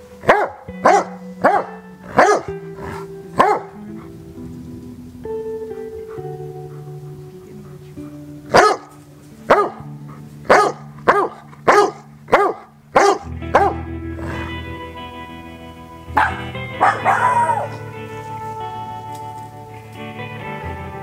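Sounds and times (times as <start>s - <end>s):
music of sustained tones: 0.0s - 21.0s
dog barking: 0.2s - 3.8s, 8.5s - 8.9s, 9.5s - 9.9s, 10.5s - 13.8s, 16.2s - 17.8s.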